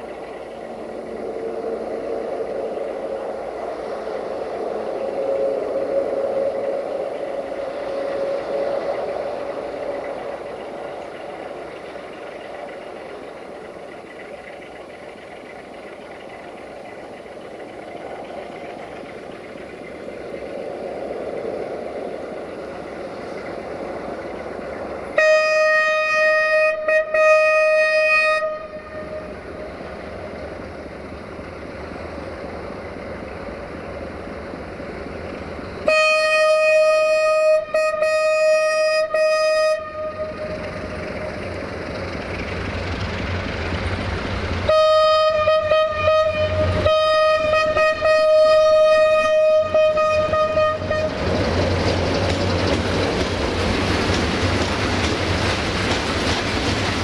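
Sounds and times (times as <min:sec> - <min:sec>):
diesel locomotive engine running: 0:00.0 - 0:57.0
locomotive horn blasts: 0:25.2 - 0:29.4, 0:35.8 - 0:40.7, 0:44.7 - 0:51.3.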